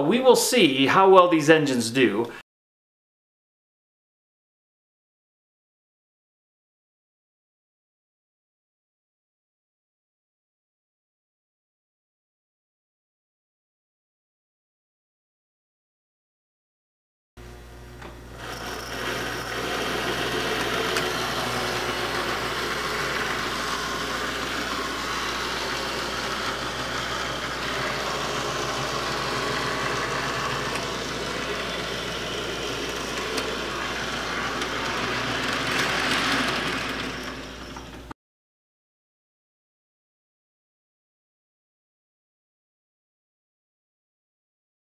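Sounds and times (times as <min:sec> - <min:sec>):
steady low hum: 0:17.4 - 0:35.7
model train motor whirring: 0:18.0 - 0:38.1
wheels clattering on metal track: 0:28.8 - 0:38.1.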